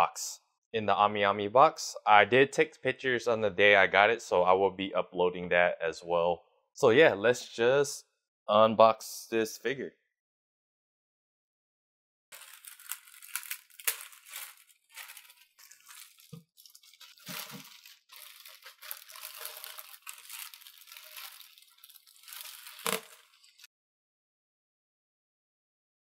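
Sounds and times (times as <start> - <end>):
plastic bag crinkling: 12.3 - 23.7.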